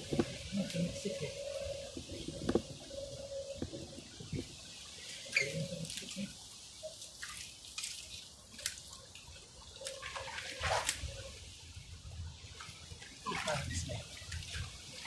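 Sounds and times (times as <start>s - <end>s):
mud squelching: 5.0s - 11.4s
sharp splashes: 7.0s - 11.3s.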